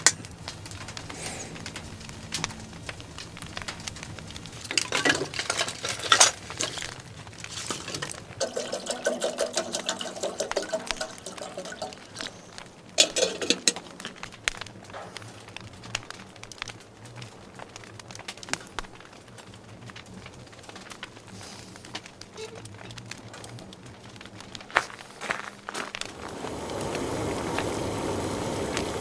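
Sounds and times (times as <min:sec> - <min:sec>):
wood fire ticking: 0:00.0 - 0:29.0
water pouring into kettle: 0:04.6 - 0:14.3, 0:26.1 - 0:29.0
metal kettle clinks: 0:04.7 - 0:06.9, 0:07.6 - 0:12.3, 0:13.0 - 0:13.9.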